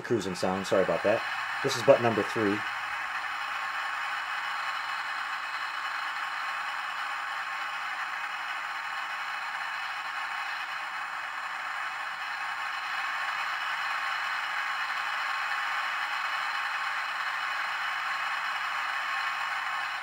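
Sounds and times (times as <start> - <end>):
spacecraft engine hissing rush: 0.0 - 15.2.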